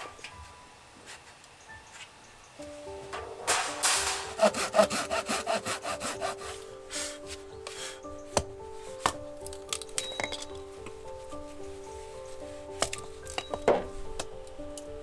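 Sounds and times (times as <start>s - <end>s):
axe striking wood: 3.7s - 6.3s
hand saw cutting wood: 3.7s - 7.9s.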